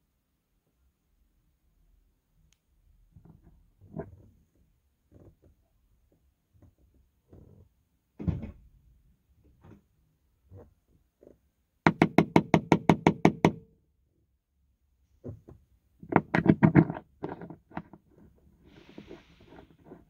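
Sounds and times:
tool knocks and handling noises: 15.2 - 18.0.

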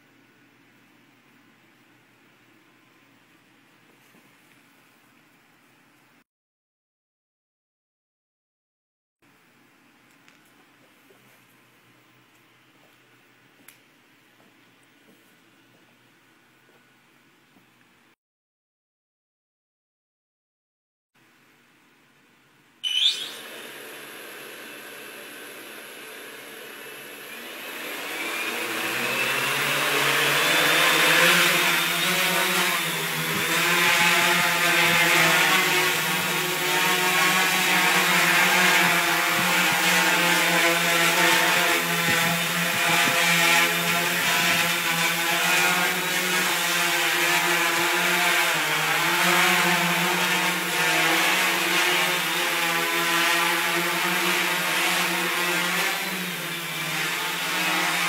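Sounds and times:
quadcopter motors buzzing: 22.8 - 58.0.

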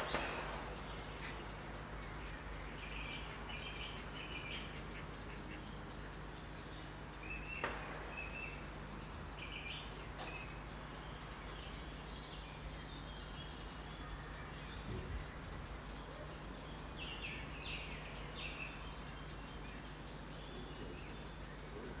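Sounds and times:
distant rifle shot: 0.0 - 1.2, 7.6 - 8.4
crickets chirping: 0.0 - 22.0.

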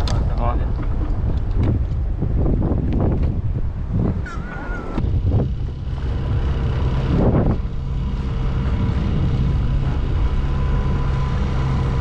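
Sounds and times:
wind gust on microphone: 0.0 - 12.0
outboard motor running: 4.5 - 12.0.

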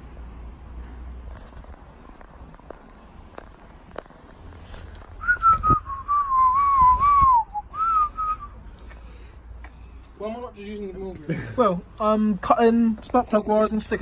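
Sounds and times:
person whistling a tune: 5.2 - 8.6.

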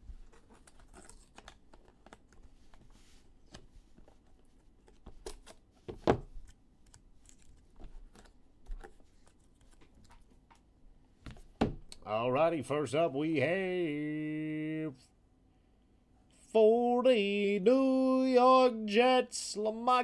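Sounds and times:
cards and packaging rustling: 0.0 - 10.6.

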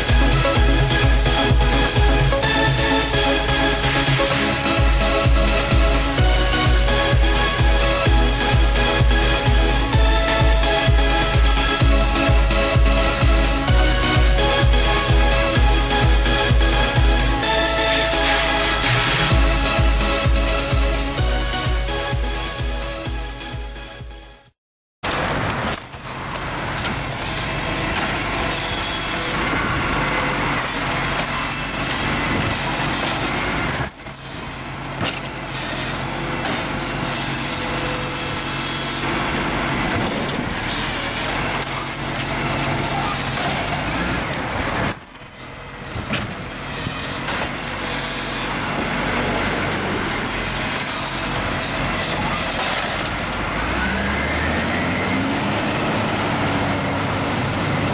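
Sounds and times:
garbage truck idling: 0.0 - 57.9
hydraulic arm tipping bins: 25.1 - 57.9.

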